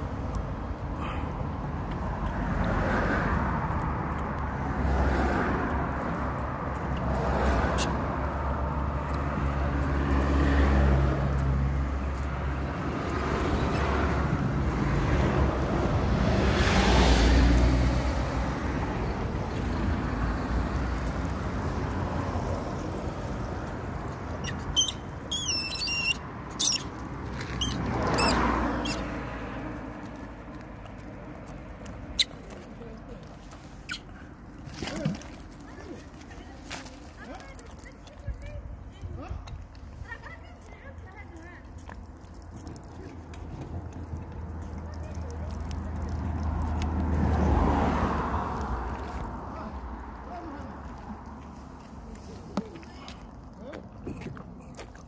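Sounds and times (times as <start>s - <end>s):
cars passing: 0.0s - 55.0s
high squeaks: 24.4s - 29.1s.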